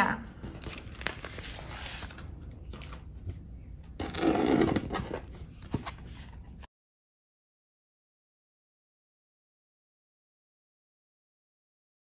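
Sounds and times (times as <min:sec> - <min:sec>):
plastic sheet and cards rustling: 0:00.4 - 0:03.4, 0:04.0 - 0:06.7.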